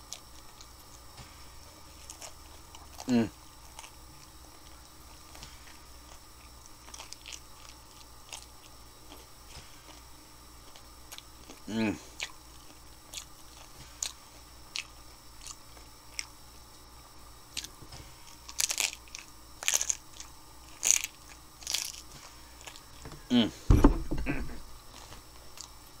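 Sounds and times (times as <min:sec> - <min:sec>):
crunchy chewing: 0:00.0 - 0:26.0
low thump: 0:23.7 - 0:24.6.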